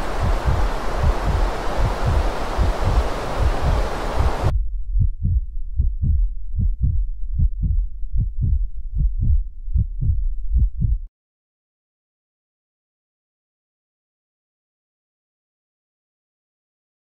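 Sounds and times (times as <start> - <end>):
hiss of noise: 0.0 - 4.5
heartbeat thumps: 0.0 - 11.1.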